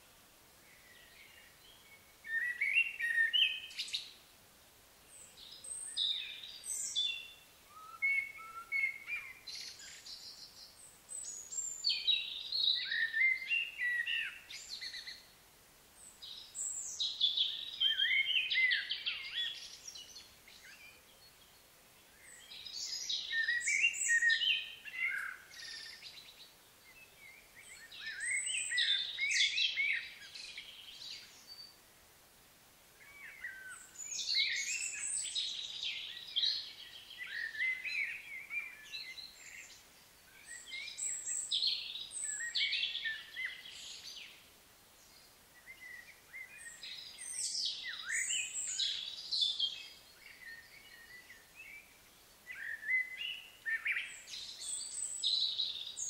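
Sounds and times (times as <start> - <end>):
songbird singing: 0.0 - 56.0.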